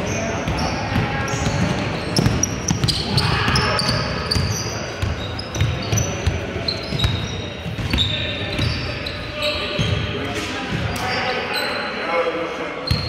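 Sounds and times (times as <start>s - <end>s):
sneaker squeaks: 0.0s - 12.0s, 12.8s - 13.0s
players' voices: 0.0s - 13.0s
basketball bouncing: 0.5s - 8.8s.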